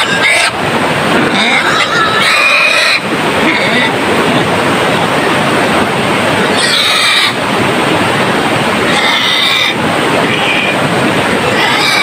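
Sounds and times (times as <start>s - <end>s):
wild boar squealing: 0.0s - 0.6s, 1.3s - 4.0s, 6.5s - 7.4s, 8.9s - 9.8s, 11.5s - 12.0s
rushing river water: 0.0s - 12.0s.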